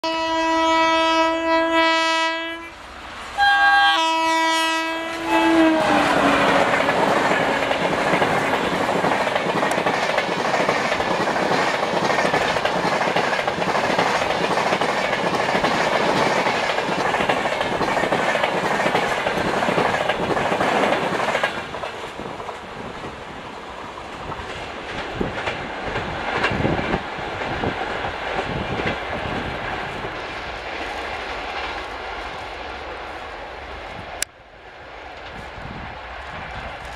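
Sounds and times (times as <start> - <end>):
train horn: 0.0 - 2.8, 3.4 - 8.6
train wheels clattering over rail joints: 5.8 - 23.2, 24.2 - 30.1.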